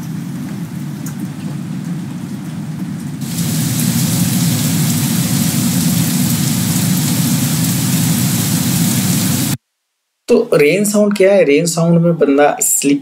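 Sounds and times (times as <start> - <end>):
rainfall hiss: 0.0 - 9.6
low rumble: 3.2 - 9.6.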